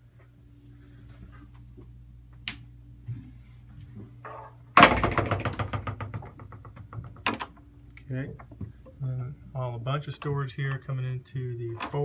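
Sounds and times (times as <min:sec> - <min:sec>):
rattle of knocks: 0:04.8 - 0:07.7.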